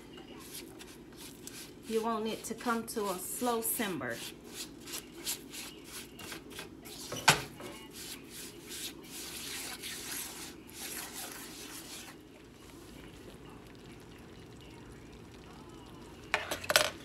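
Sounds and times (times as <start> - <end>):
spatula scraping a skillet: 0.3 - 12.2.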